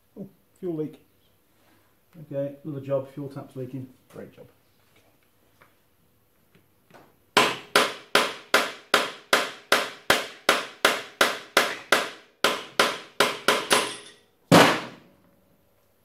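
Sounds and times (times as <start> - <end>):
hammer striking metal sprocket: 13.3 - 14.2.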